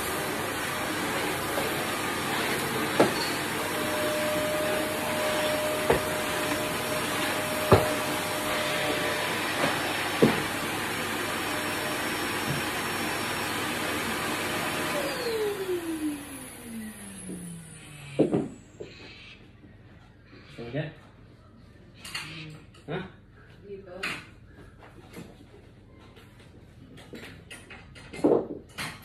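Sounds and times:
vacuum motor winding down: 0.0s - 18.2s
vacuum cleaner running: 0.0s - 18.8s.

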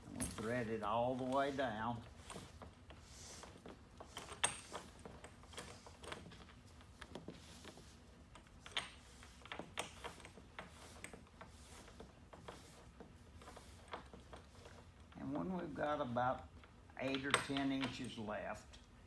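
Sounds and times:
rope and leather rustling: 0.0s - 16.0s.

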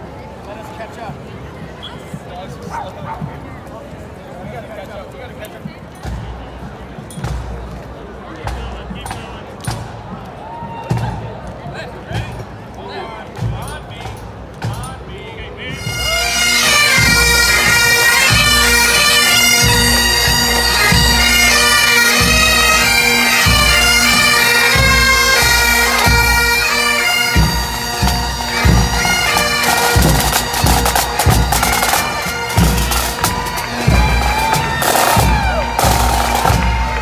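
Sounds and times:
snare drums: 6.0s - 11.4s, 13.3s - 15.9s, 27.3s - 37.0s
bagpipes playing over drones: 15.8s - 37.0s.

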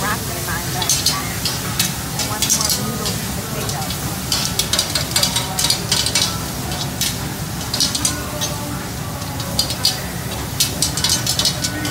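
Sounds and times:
food sizzling: 0.0s - 11.9s
metal sticks scraping a griddle: 0.0s - 11.9s.

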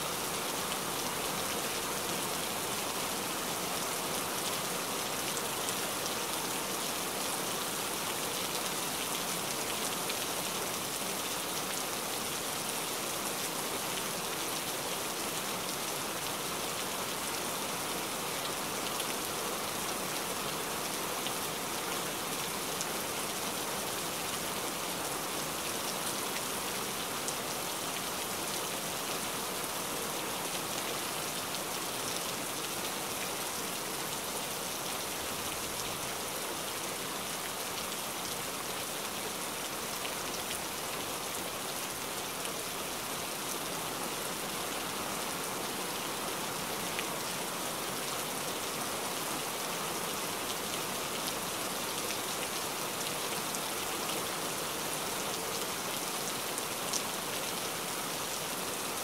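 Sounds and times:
heavy rain: 0.0s - 59.0s.

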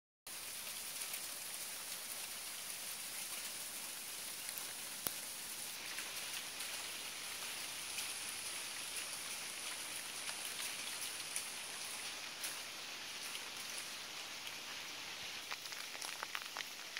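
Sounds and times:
snow pellets on metal roof: 15.4s - 16.9s.

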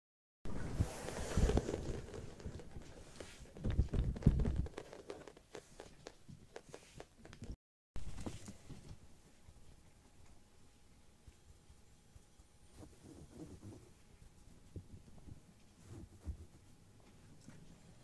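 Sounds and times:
kitten footsteps on a mat: 1.3s - 9.0s.

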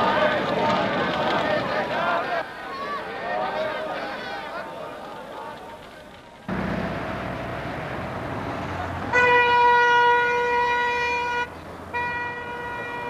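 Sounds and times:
road traffic: 0.0s - 13.0s
vehicle horn long note: 9.1s - 13.0s.

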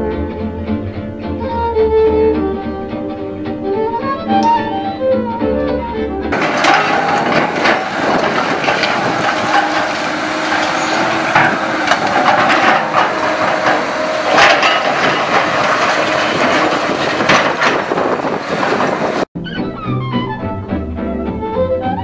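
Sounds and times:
excavator engine running: 1.2s - 19.3s
breaking concrete and falling rubble: 6.3s - 19.2s
loud cracks: 6.3s - 19.3s.

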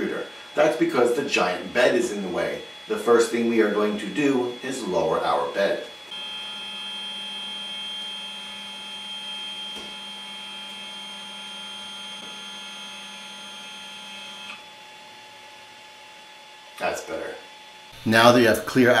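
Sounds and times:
stepper motors whining: 6.0s - 14.6s.

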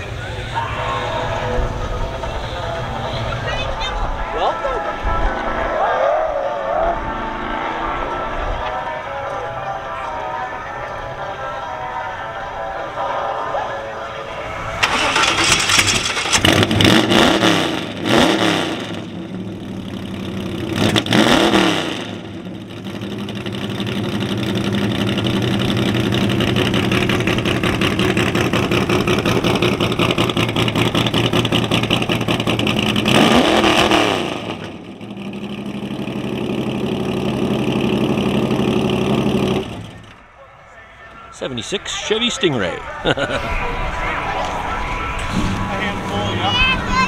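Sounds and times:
car engine idling and revving: 0.0s - 5.8s, 13.0s - 40.4s, 43.9s - 47.0s.

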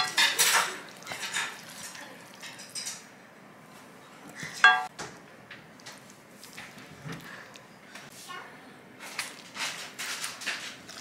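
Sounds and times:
cutlery clinking against dishes: 0.0s - 1.6s, 4.5s - 4.9s.

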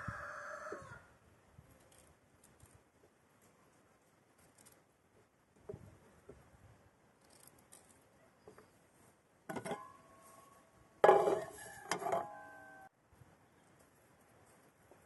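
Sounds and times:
metal cooking pot clanking: 9.5s - 9.9s, 11.0s - 12.3s.

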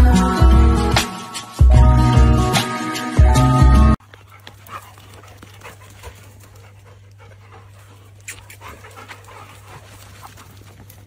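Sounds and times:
dog panting: 4.0s - 11.0s.

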